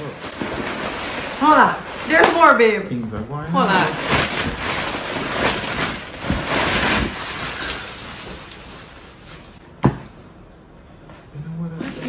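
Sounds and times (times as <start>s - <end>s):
cardboard and packing rustling: 0.0s - 10.0s.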